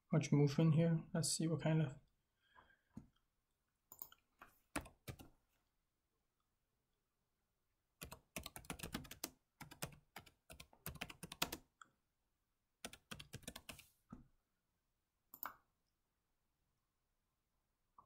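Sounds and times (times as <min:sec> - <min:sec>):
typing on keyboard: 0:03.9 - 0:05.3, 0:08.0 - 0:11.7, 0:12.8 - 0:13.8.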